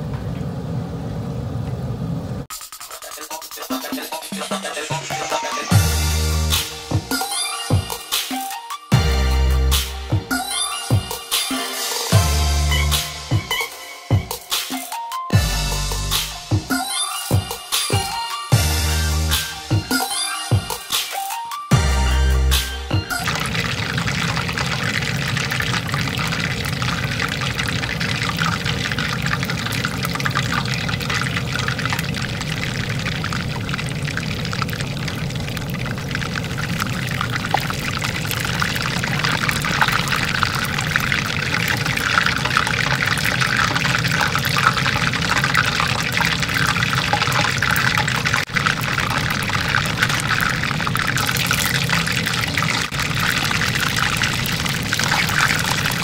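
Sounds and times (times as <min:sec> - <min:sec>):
oil sizzling and crackling: 0:04.9 - 0:11.0, 0:21.7 - 0:56.0.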